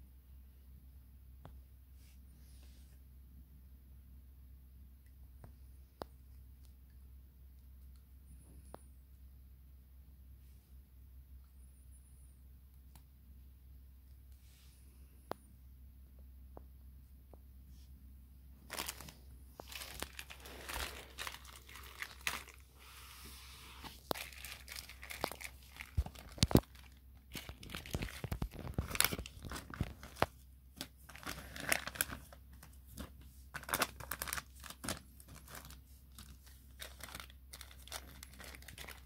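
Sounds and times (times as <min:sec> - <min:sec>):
packaging tearing: 0:18.7 - 0:22.7, 0:24.0 - 0:32.4, 0:33.0 - 0:39.0
foil and paper crinkling: 0:18.7 - 0:22.8, 0:23.8 - 0:39.0.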